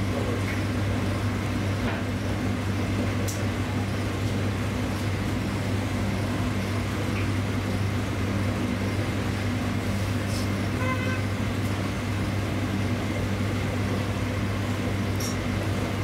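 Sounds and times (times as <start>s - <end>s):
street traffic noise: 9.9s - 12.0s.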